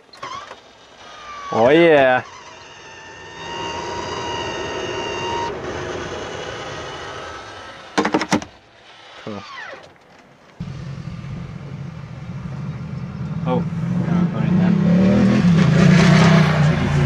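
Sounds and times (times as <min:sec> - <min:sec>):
roof vent fan motor whine: 0:02.7 - 0:08.0.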